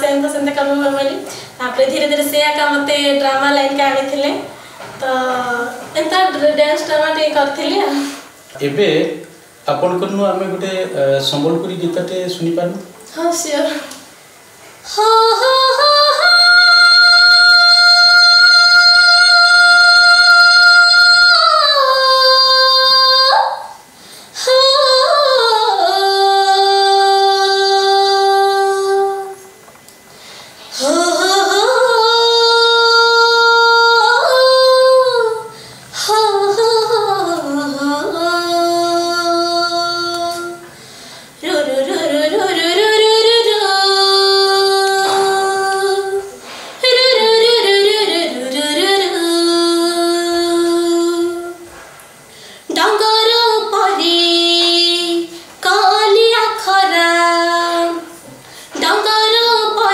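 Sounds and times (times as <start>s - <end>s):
singer breathing: 7.9s - 8.4s, 23.9s - 24.4s, 30.1s - 30.8s, 35.5s - 36.0s, 40.7s - 41.4s, 46.3s - 46.8s, 51.8s - 52.7s, 58.3s - 58.8s
woman singing folk song: 14.8s - 29.5s, 30.7s - 51.8s, 52.7s - 59.9s.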